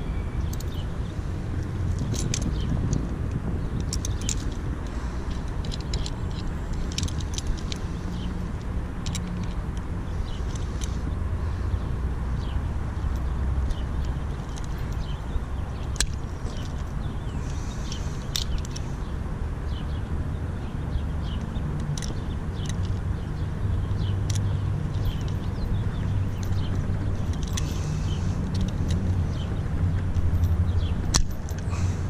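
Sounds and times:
steady low rumble: 0.0 - 32.0
pliers and chain clinking: 0.1 - 0.9, 1.5 - 11.1, 12.4 - 19.1, 21.2 - 32.0.

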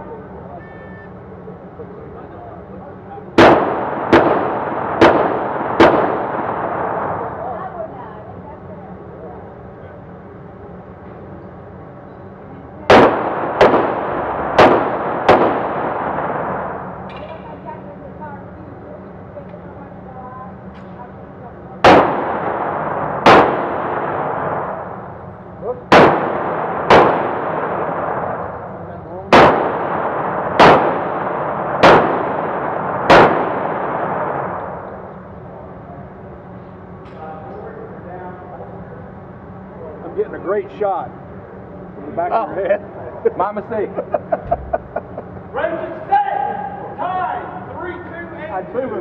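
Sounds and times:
handgun shots with ringing echo: 3.4 - 7.0, 12.9 - 17.4, 21.8 - 24.9, 25.9 - 28.4, 29.3 - 34.9.

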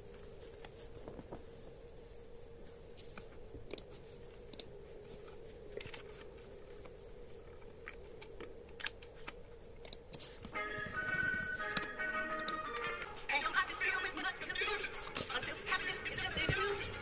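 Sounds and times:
faint steady hum: 0.0 - 17.0
computer mouse clicks: 3.2 - 4.7, 7.6 - 10.2, 11.8 - 12.6.

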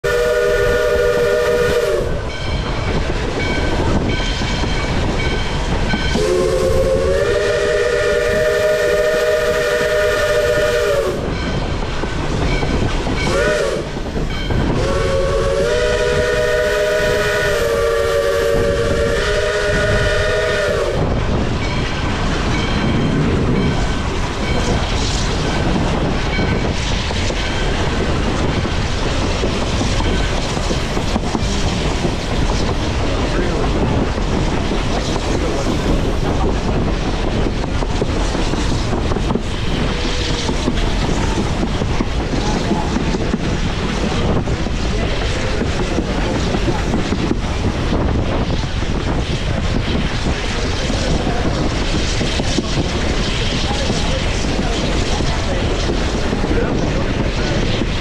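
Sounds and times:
steam whistle blasts: 0.0 - 2.3, 6.1 - 11.3, 13.2 - 14.0, 14.7 - 21.1
train wheels clattering on rails: 0.0 - 58.0.

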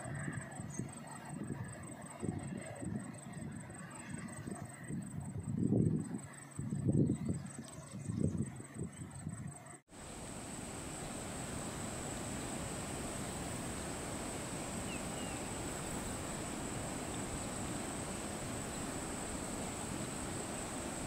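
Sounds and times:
insects droning: 0.0 - 21.0
low rushing outdoor hum: 9.9 - 21.0.

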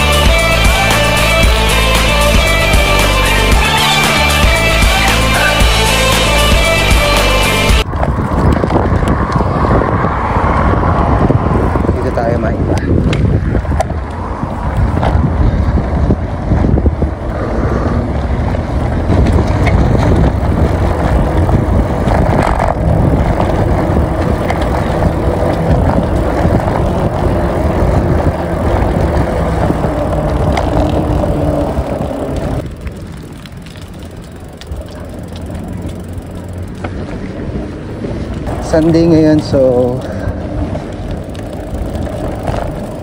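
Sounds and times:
bicycle tyre rumble on concrete: 0.0 - 43.0
wind rushing over microphone: 3.5 - 43.0.

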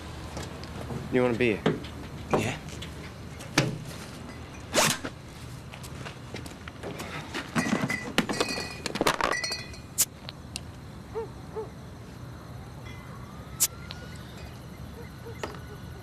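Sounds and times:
glass bottles clinking: 4.0 - 4.7, 7.6 - 10.0.

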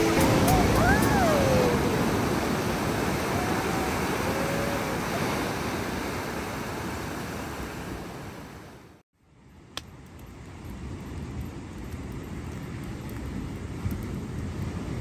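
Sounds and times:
waves breaking: 0.0 - 9.0.

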